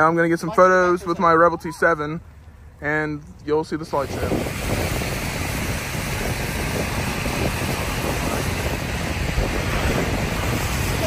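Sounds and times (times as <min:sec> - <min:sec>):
wind buffeting microphone: 0:03.3 - 0:11.0.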